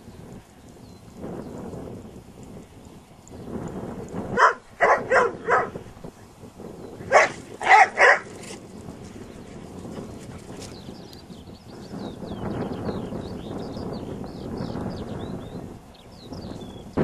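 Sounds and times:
dog barking: 4.4s - 5.8s, 7.1s - 8.3s.

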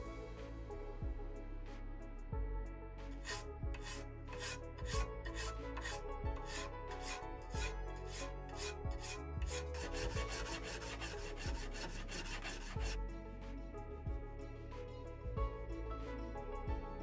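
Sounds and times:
metal file rasping on aluminium: 3.2s - 13.0s.

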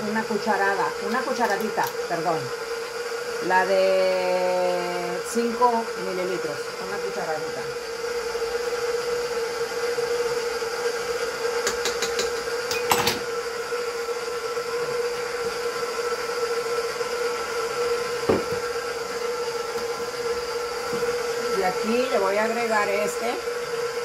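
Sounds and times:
stand mixer motor humming: 0.0s - 24.0s
knock: 18.3s - 18.6s.

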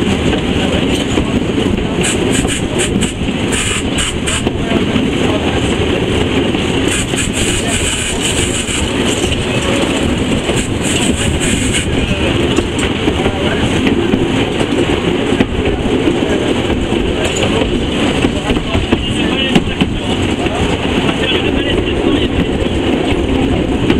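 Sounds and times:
steam locomotive wheels clattering: 0.0s - 23.9s
steam hissing: 2.0s - 4.5s, 6.7s - 12.5s.

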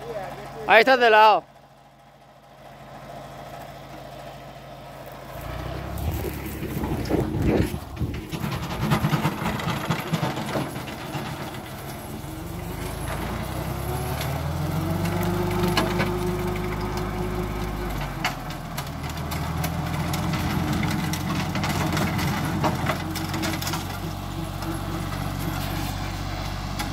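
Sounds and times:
tractor engine running: 0.0s - 26.9s
mulcher chopping brush: 5.0s - 26.9s.

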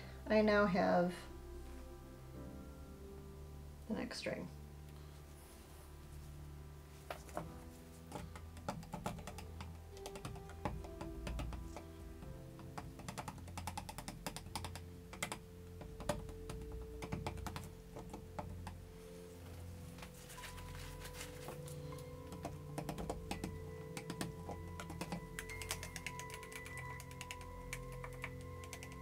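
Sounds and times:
stir stick tapping plastic cups: 8.1s - 11.9s, 22.2s - 29.0s.

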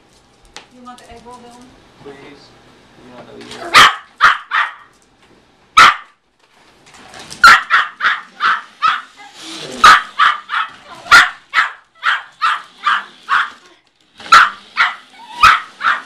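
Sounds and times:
dog barking: 3.6s - 4.9s, 5.8s - 6.2s, 7.4s - 9.1s, 9.8s - 13.6s, 14.2s - 16.0s.

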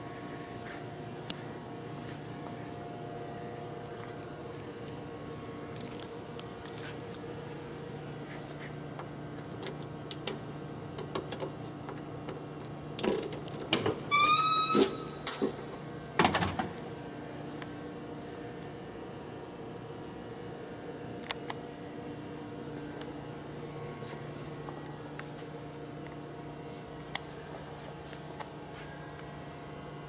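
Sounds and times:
steady low hum: 0.0s - 30.0s
short squeak: 14.1s - 15.1s.

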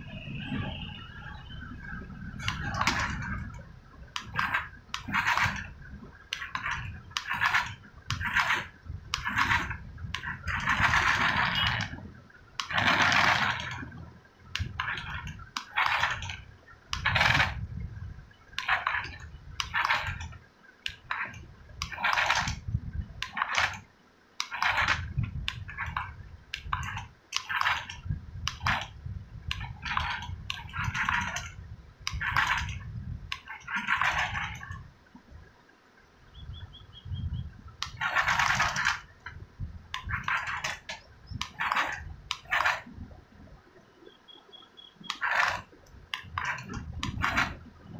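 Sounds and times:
low rumbles: 0.0s - 15.6s
toy car motor whirring: 24.4s - 26.0s.

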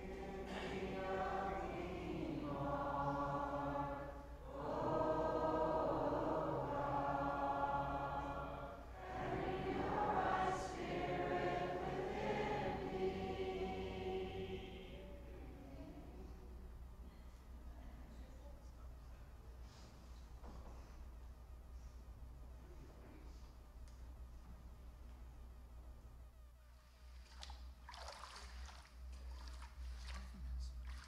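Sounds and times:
congregation singing a hymn: 0.0s - 15.6s.

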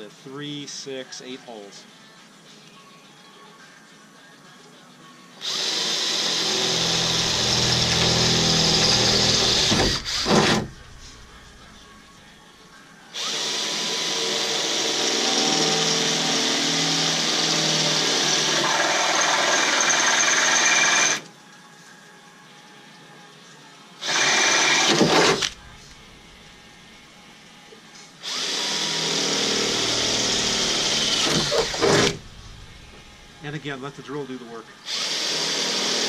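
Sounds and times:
cordless drill boring sheet metal: 5.4s - 11.8s, 13.2s - 21.2s, 24.0s - 25.7s, 28.2s - 33.6s, 34.9s - 36.0s.

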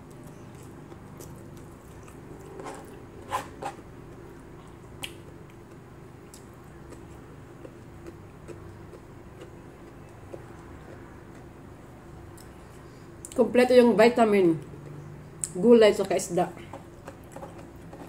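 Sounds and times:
wet chewing and smacking: 0.0s - 3.0s, 4.1s - 13.4s, 16.7s - 18.0s
steady low hum: 0.0s - 18.0s.

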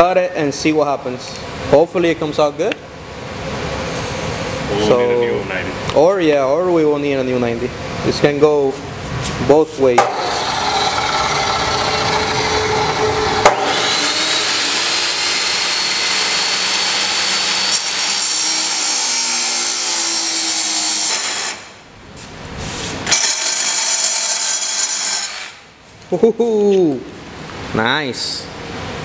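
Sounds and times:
chop saw cutting steel tube: 10.0s - 21.8s, 23.1s - 25.6s
reciprocating saw cutting tube: 10.0s - 21.8s, 23.0s - 25.7s.

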